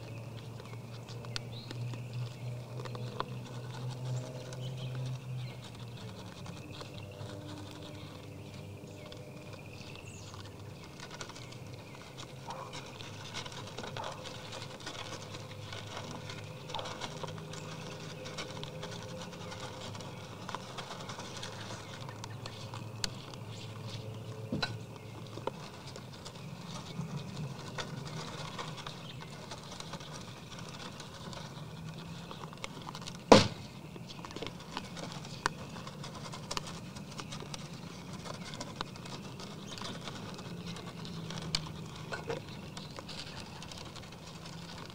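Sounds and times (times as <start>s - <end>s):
deer crunching feed: 0.0s - 44.9s
sharp knock: 33.3s - 33.6s.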